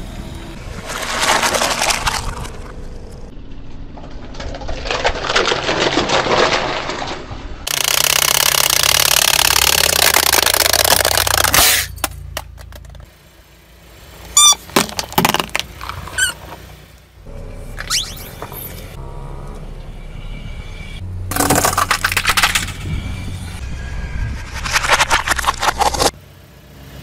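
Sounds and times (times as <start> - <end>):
rubber toy balls squeaking: 14.4 - 16.5, 17.8 - 18.8
plastic cups crunching: 21.3 - 22.7.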